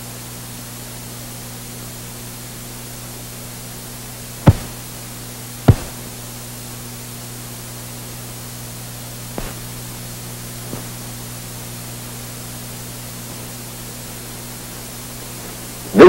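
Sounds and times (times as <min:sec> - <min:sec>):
film soundtrack hiss and hum: 0:00.0 - 0:16.0
sharp film pops: 0:09.4 - 0:09.7.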